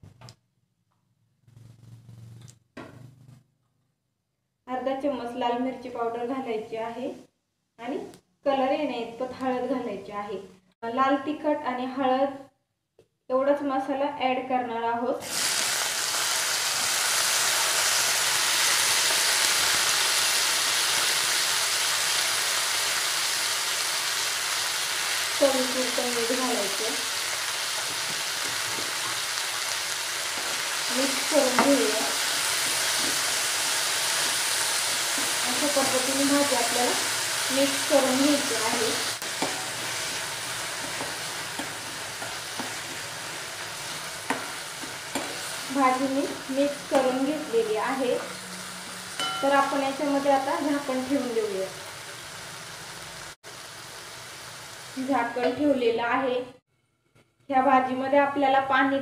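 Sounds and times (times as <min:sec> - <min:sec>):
vegetables sizzling in oil: 0:15.2 - 0:56.3
spoon scraping pan: 0:27.7 - 0:49.8.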